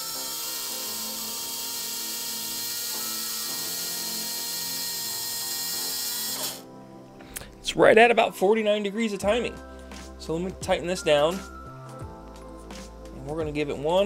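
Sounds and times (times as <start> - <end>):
electric motor high whine: 0.0 - 6.7.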